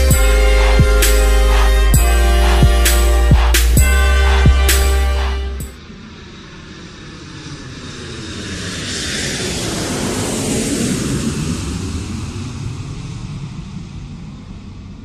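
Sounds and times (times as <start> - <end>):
aircraft flying past: 5.8 - 15.0.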